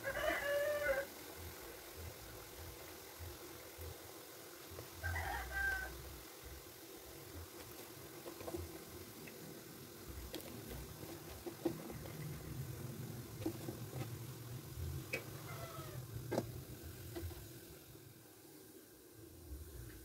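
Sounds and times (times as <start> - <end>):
cat meow: 15.5 - 16.0.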